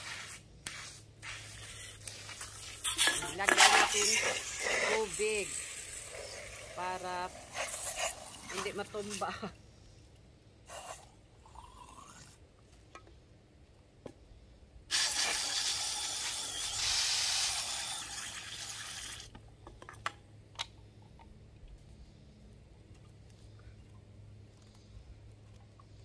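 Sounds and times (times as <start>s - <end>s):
hose water rushing into can: 1.2s - 9.4s, 14.9s - 19.3s.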